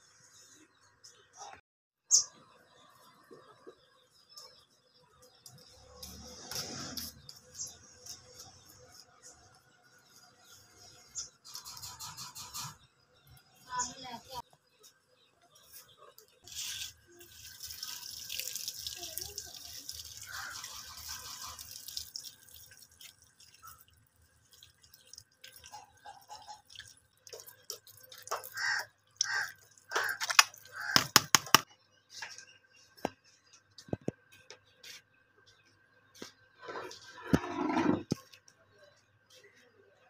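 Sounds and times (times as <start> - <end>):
tap water splashing into a bowl: 24.7 - 28.6.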